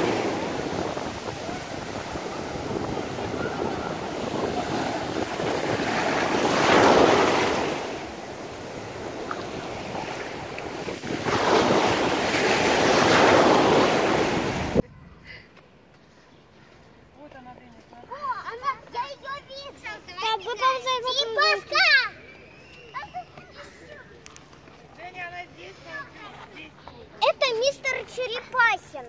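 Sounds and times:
surf breaking on beach: 0.0s - 14.8s.

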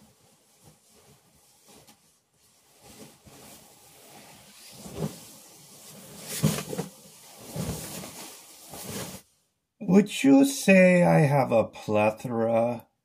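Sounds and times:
nylon sleeping bags rustling: 0.0s - 9.4s.

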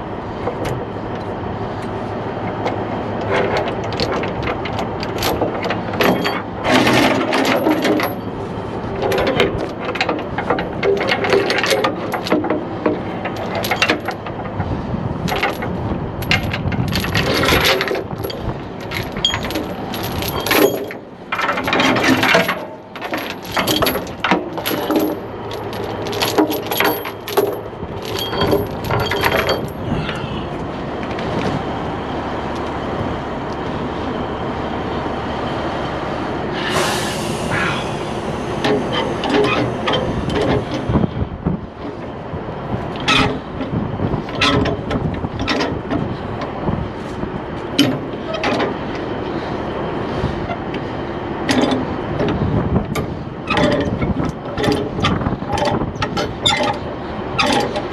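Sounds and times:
steel chain clanking: 3.3s - 8.4s, 9.0s - 14.6s, 15.2s - 30.3s, 53.5s - 57.9s
truck engine idling: 22.5s - 43.6s
air hiss: 36.5s - 39.0s.

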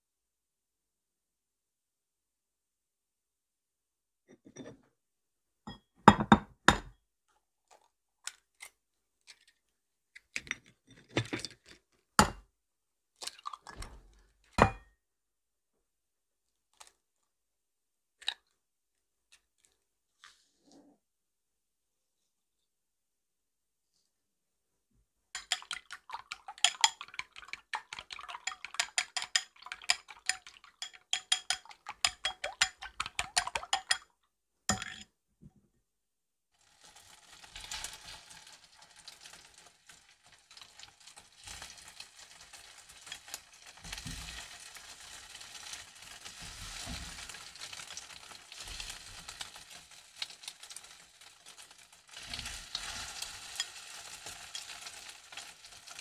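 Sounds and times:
eggs beaten in ceramic bowl: 25.4s - 34.1s
food sizzling in frying pan: 36.6s - 56.0s.

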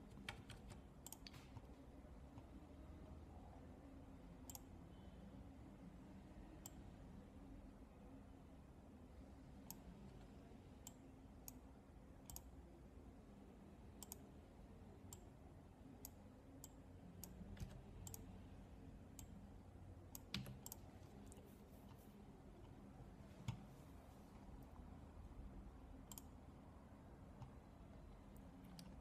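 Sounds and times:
computer mouse clicks: 0.0s - 1.7s, 4.4s - 4.7s, 12.2s - 12.5s, 14.0s - 14.3s, 15.1s - 15.3s, 16.0s - 18.3s, 20.1s - 22.8s, 23.4s - 23.8s, 26.0s - 26.4s, 28.3s - 29.0s
low room hum: 0.0s - 29.0s.

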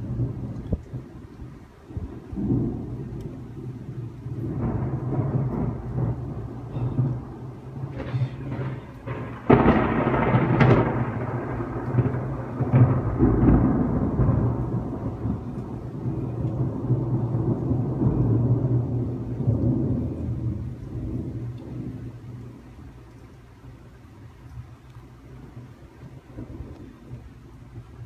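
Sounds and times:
rumbling thunder: 0.0s - 24.0s, 24.7s - 28.0s
thunderclap: 0.0s - 24.0s, 25.3s - 28.0s
sharp thunder crack: 1.9s - 22.5s.

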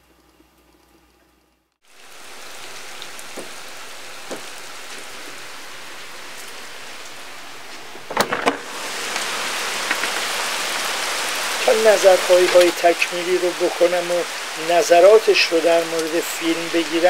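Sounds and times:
heavy rain on paving and foliage: 1.8s - 17.0s
faint knocks: 4.2s - 4.6s.

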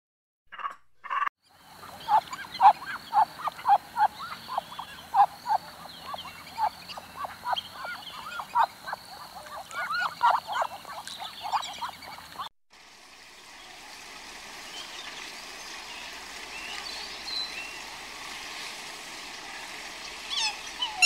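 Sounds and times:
waterfowl honking: 1.8s - 12.5s, 20.3s - 21.0s.

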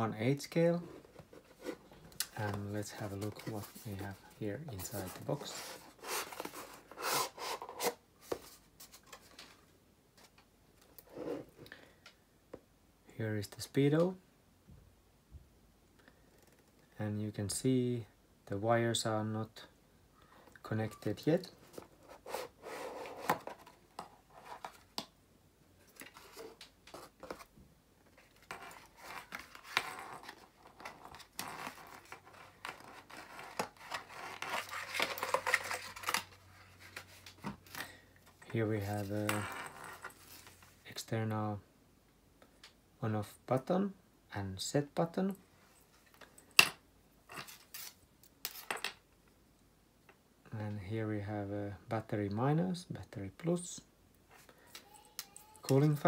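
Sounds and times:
cardboard and plastic rubbing: 0.8s - 9.6s, 21.6s - 25.0s, 28.1s - 40.8s.

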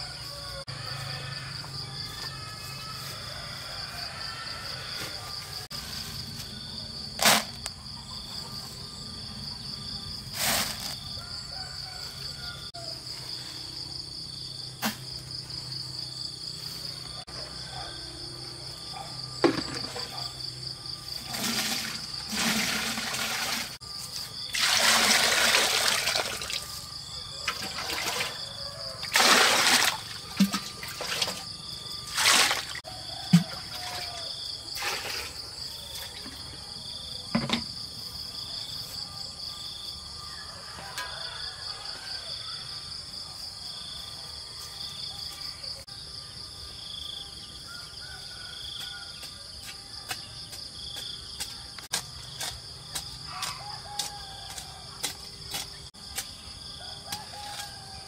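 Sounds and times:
insects chirring: 0.0s - 58.0s
water splashing: 24.6s - 26.6s, 29.1s - 31.4s.

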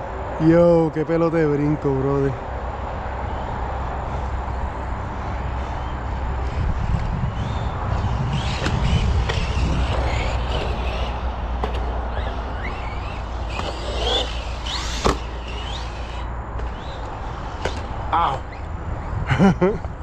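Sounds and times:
rc truck motor whining: 3.2s - 19.2s.

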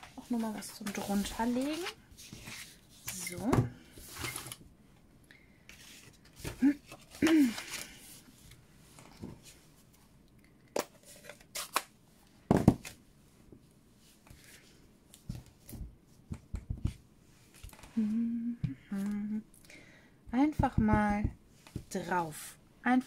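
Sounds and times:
woman humming: 17.9s - 19.5s.

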